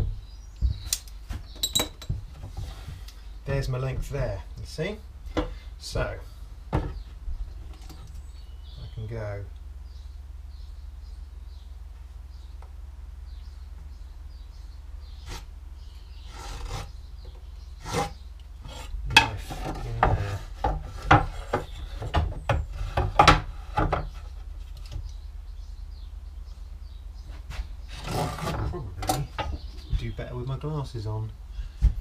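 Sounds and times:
knife scraping wooden board: 0:15.2 - 0:15.5, 0:16.2 - 0:17.0, 0:17.8 - 0:22.1, 0:27.5 - 0:28.7.

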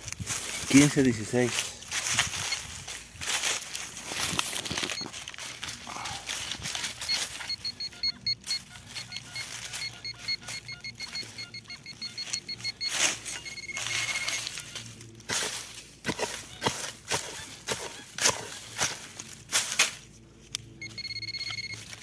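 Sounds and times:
scraping on ground: 0:00.0 - 0:20.6
metal detector beeping: 0:00.4 - 0:01.4, 0:02.0 - 0:02.9, 0:04.1 - 0:18.8, 0:20.8 - 0:22.0.

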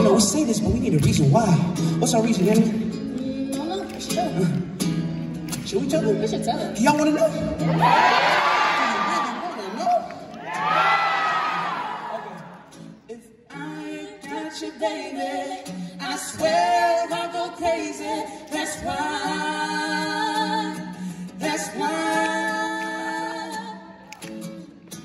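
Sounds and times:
woman singing into a microphone: 0:13.2 - 0:24.1.

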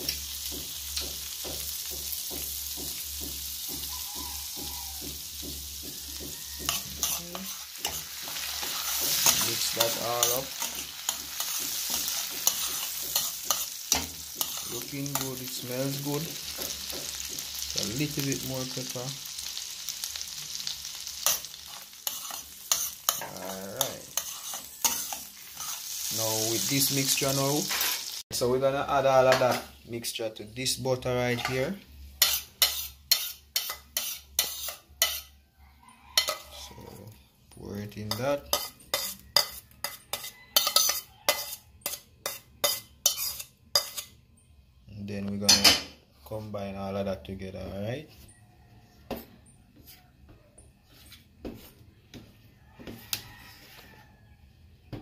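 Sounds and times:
butter sizzling in a metal pot: 0:00.0 - 0:35.4, 0:36.2 - 0:36.8, 0:37.8 - 0:44.2.

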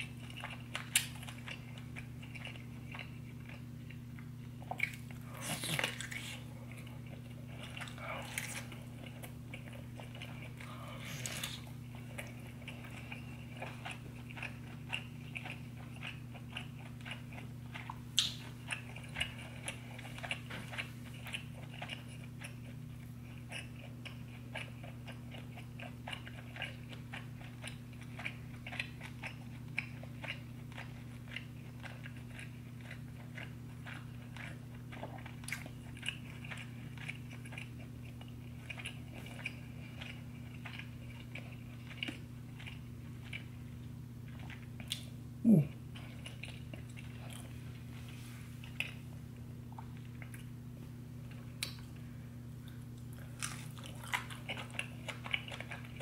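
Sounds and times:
close chewing and biting: 0:00.0 - 0:50.5, 0:52.6 - 0:56.0
steady low hum: 0:00.0 - 0:56.0.

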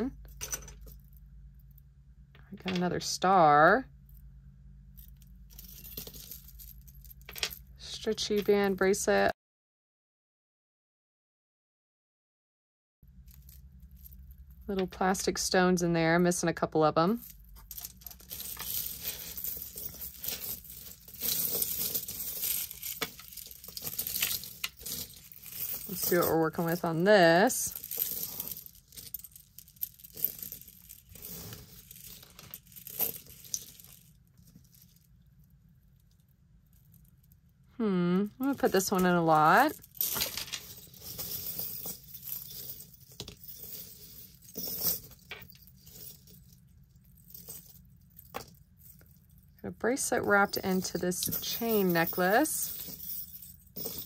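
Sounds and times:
metal chains jingling: 0:05.6 - 0:07.6, 0:17.2 - 0:34.0, 0:38.4 - 0:46.5, 0:50.4 - 0:54.0.

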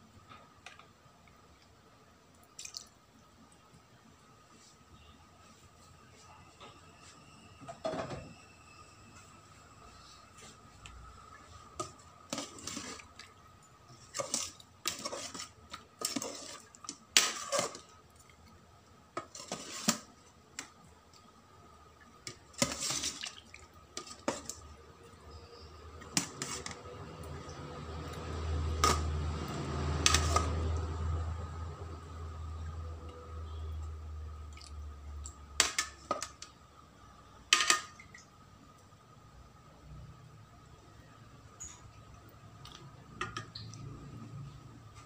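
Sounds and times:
metal spoon scraping pot: 0:11.8 - 0:13.1, 0:13.9 - 0:17.9, 0:19.2 - 0:20.1, 0:25.3 - 0:27.0, 0:30.0 - 0:30.6.

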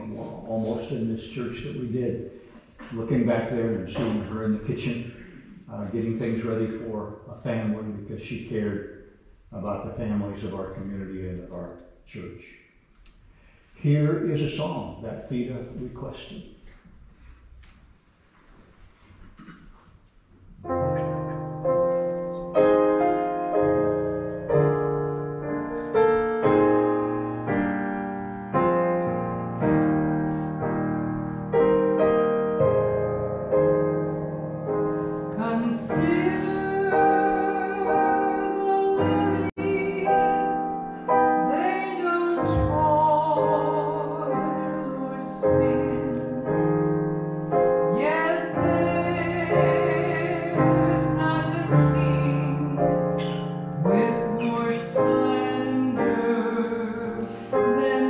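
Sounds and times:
piano: 0:00.0 - 0:12.4, 0:18.4 - 0:58.0
person singing with vibrato: 0:35.1 - 0:46.7, 0:47.9 - 0:58.0.

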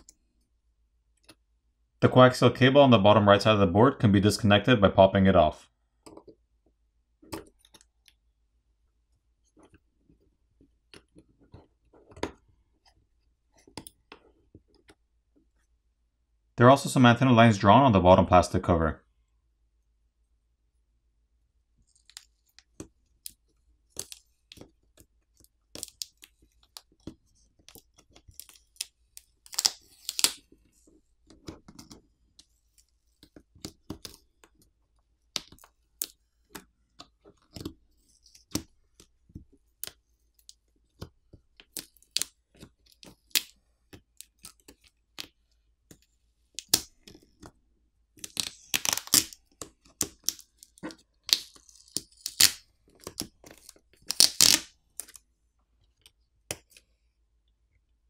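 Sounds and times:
adhesive tape crackling: 0:27.7 - 0:30.5, 0:48.2 - 0:55.2
tape tearing: 0:29.5 - 0:30.5, 0:48.2 - 0:49.4, 0:51.2 - 0:55.1.

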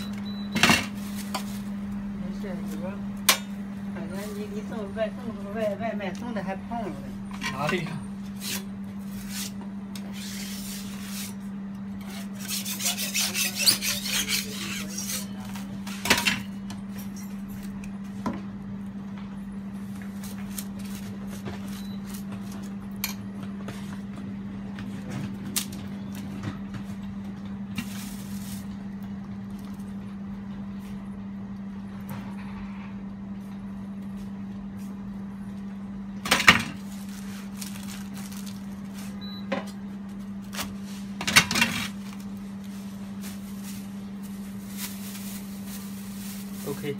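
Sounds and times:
steady low hum: 0:00.0 - 0:46.9
metal spatula scraping griddle: 0:12.0 - 0:15.3.

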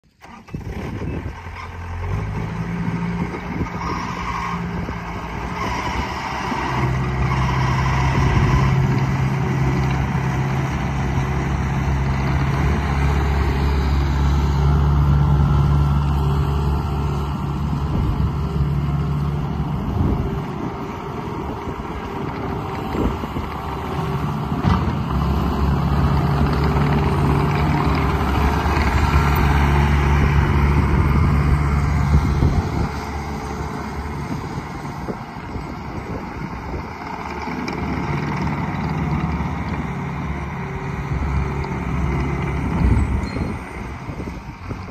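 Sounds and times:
diesel engine running: 0:00.0 - 0:44.9.

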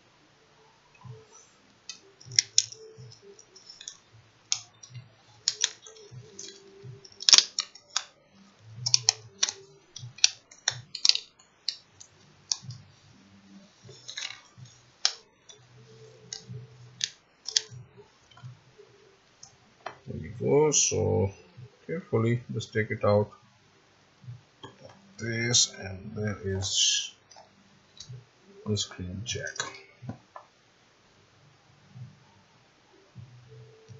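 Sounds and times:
plastic and tape crackling: 0:01.0 - 0:20.1.

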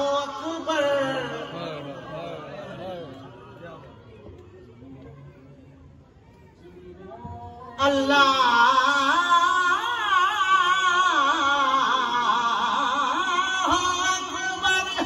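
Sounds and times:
man chanting a lament: 0:00.0 - 0:03.9, 0:07.7 - 0:15.0.

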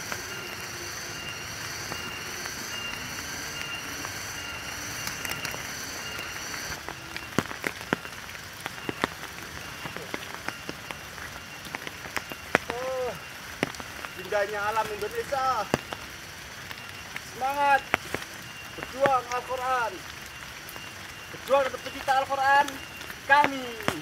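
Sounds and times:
high rhythmic chirring: 0:00.0 - 0:06.8
rain pattering on foliage: 0:00.0 - 0:24.0
sharp water drips and taps: 0:00.0 - 0:24.0.

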